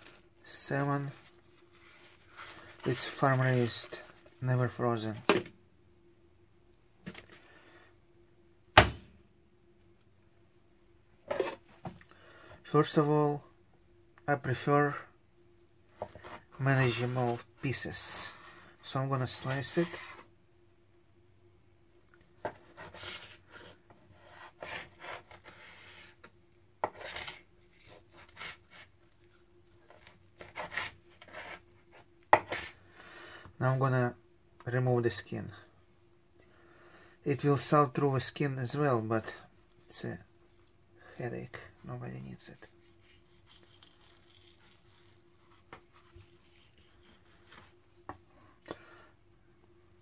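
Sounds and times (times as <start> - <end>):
faint steady hum: 0.0 - 50.0
blade scraping cutting board: 11.3 - 11.6, 19.3 - 20.3, 22.4 - 28.9, 29.9 - 32.8, 42.8 - 47.7
knife sawing through fish: 42.8 - 47.7.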